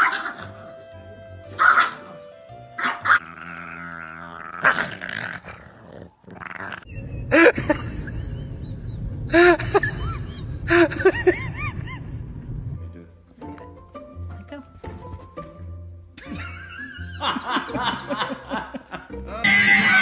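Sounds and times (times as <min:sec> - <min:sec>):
dog growling: 0:03.0 - 0:06.9.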